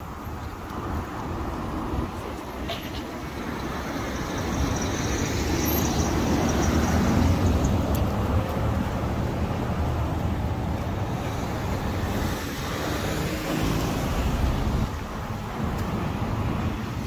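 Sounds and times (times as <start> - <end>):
street traffic noise: 0.0 - 17.0.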